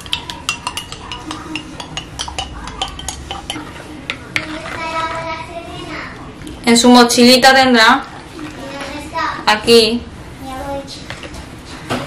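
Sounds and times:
stirring puree in bowl: 0.0 - 6.6.

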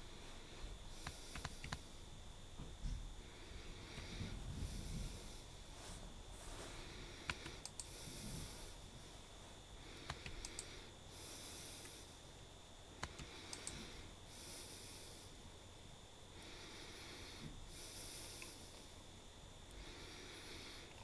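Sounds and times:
slow breathing: 0.0 - 2.0, 3.1 - 12.3, 13.0 - 15.5, 16.2 - 21.0.

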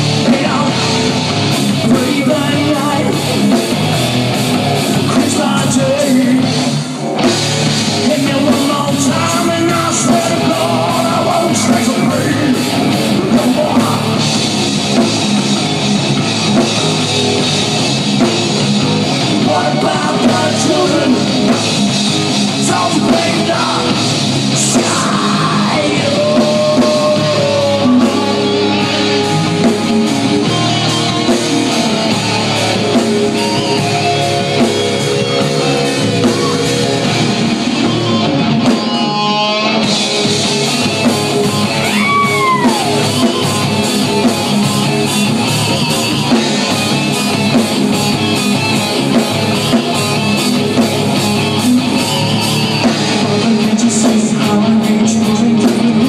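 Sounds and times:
drums: 0.0 - 56.0
electric guitars: 0.0 - 56.0
person singing: 1.8 - 3.4, 5.1 - 6.6, 8.0 - 14.4, 19.4 - 21.5, 22.6 - 31.1, 52.0 - 56.0.

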